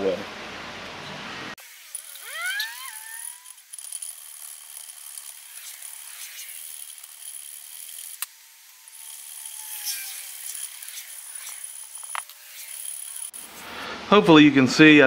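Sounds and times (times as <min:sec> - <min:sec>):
rising squeal: 0:02.0 - 0:03.6, 0:08.6 - 0:13.3.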